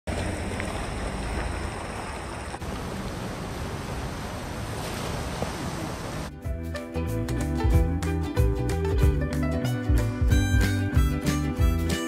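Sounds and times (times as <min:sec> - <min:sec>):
heavy rain: 0:00.3 - 0:06.3
water pouring over spillway: 0:00.7 - 0:06.3.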